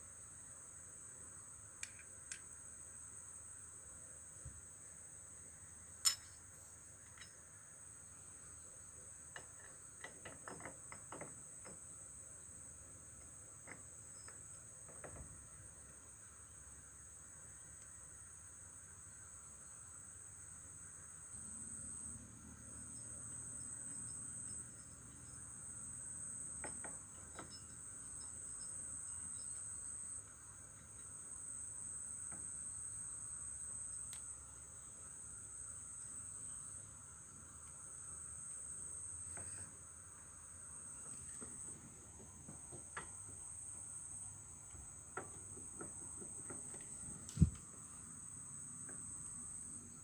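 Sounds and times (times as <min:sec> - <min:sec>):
crickets chirping: 0:00.0 - 0:50.0.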